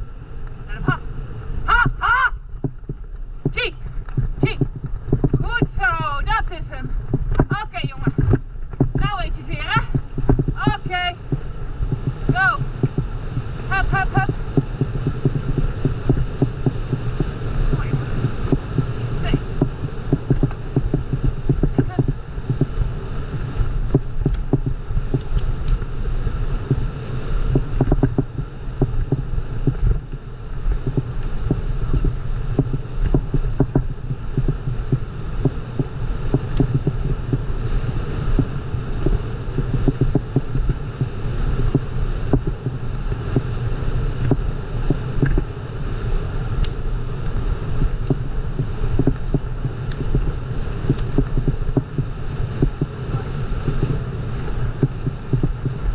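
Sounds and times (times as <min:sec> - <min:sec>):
bicycle tyres rumbling on trail: 0:00.0 - 0:55.9
wind on microphone: 0:00.0 - 0:55.9
bike rattling and knocking: 0:02.5 - 0:25.9, 0:27.5 - 0:30.2, 0:30.8 - 0:37.5, 0:38.3 - 0:43.5, 0:47.8 - 0:53.0.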